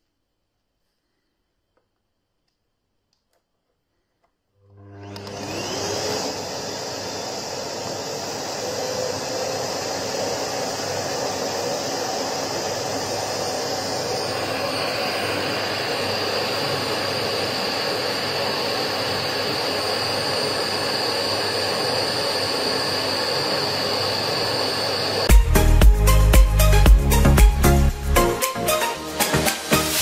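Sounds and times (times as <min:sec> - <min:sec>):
vacuum cleaner running: 0:04.6 - 0:26.3
high motor whine: 0:05.0 - 0:25.3.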